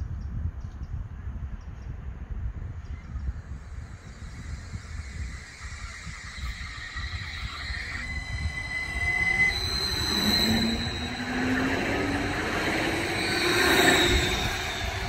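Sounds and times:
low whine: 2.9s - 15.0s
light-rail train arriving: 3.0s - 15.0s
high wheel squeal: 3.4s - 15.0s.

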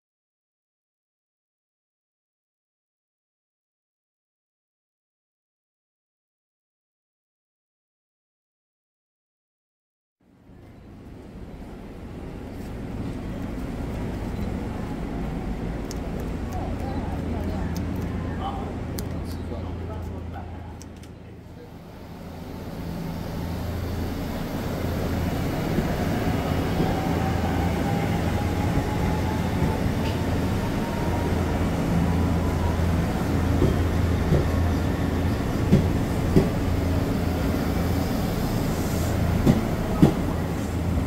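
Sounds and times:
train wheels clacking: 33.5s - 34.7s, 35.6s - 36.6s, 39.4s - 40.4s.

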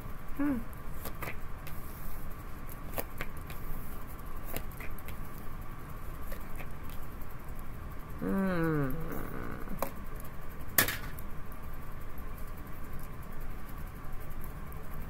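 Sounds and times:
person humming: 0.3s - 0.8s, 8.2s - 9.9s
cards tapping and sliding: 1.0s - 2.2s, 2.8s - 3.8s, 4.4s - 5.4s.

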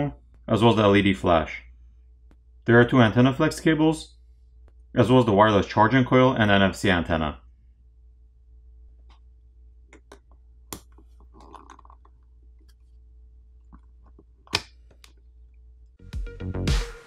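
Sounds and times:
electronic music: 16.0s - 17.0s.

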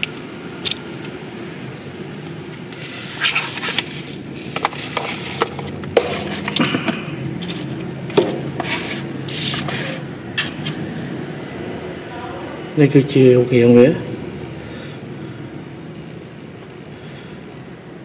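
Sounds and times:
paper and cardboard rustling: 2.8s - 10.8s.

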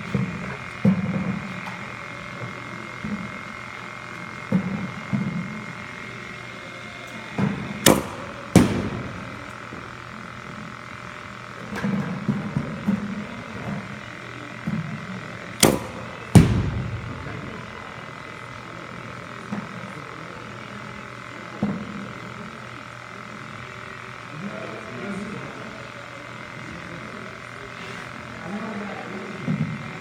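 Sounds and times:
bat hitting ball cracks: 7.8s - 9.5s, 15.6s - 17.8s
faint thuds: 15.6s - 17.7s.

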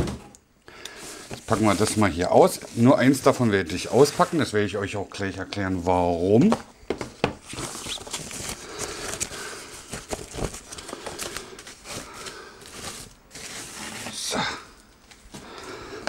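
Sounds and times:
plastic wrapping crinkling: 7.4s - 14.4s.

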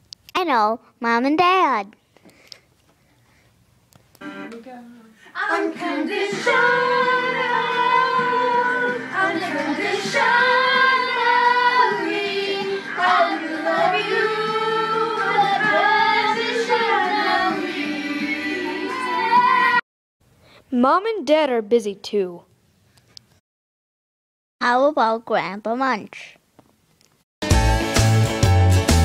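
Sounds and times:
woman singing: 5.0s - 19.8s.

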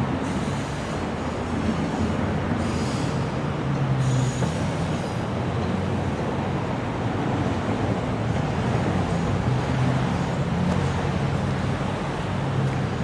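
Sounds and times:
train wheels rumbling on track: 0.0s - 13.0s
faint wheel squeal: 0.2s - 3.4s, 4.0s - 5.7s.

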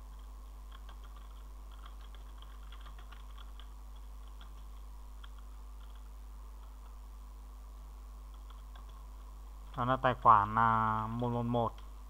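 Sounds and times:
low hum: 0.0s - 12.0s
keyboard typing: 0.1s - 7.0s, 8.3s - 9.9s.

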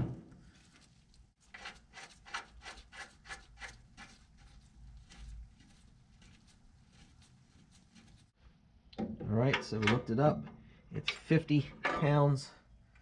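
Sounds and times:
rubber boot rubbing strokes: 0.4s - 8.4s.

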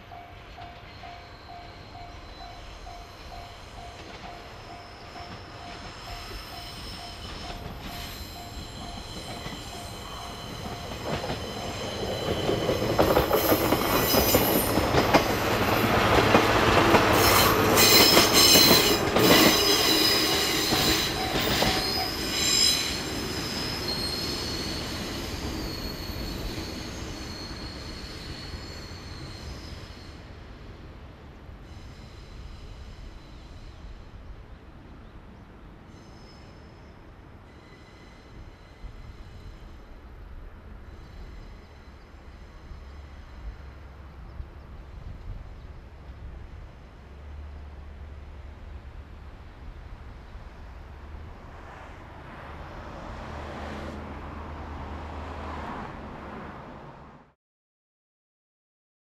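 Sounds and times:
diesel locomotive engine drone: 0.0s - 57.2s
high-pitched wheel squeal: 4.4s - 14.8s, 17.2s - 30.2s.

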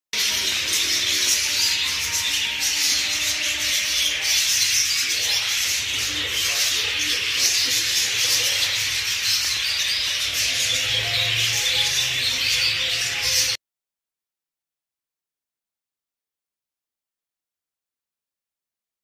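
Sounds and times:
budgerigars chattering: 0.2s - 13.6s.

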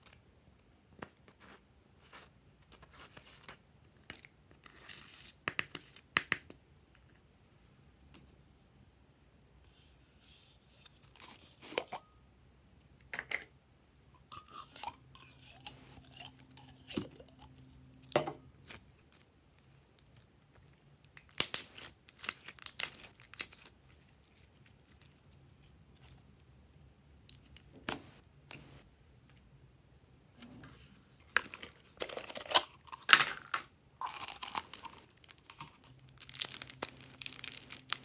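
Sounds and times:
slime crackling and popping: 34.0s - 38.0s.

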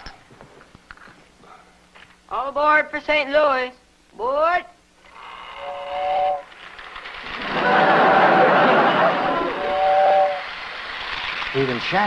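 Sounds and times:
toy train whistle: 5.1s - 6.7s, 9.4s - 10.7s.

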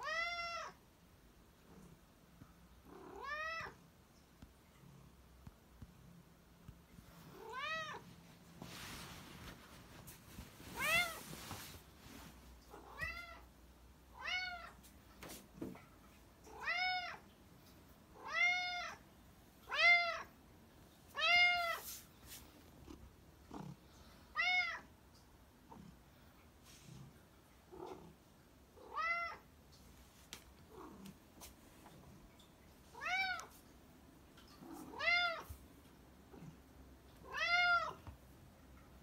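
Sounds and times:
cat meowing: 2.9s - 3.8s, 37.2s - 38.0s.

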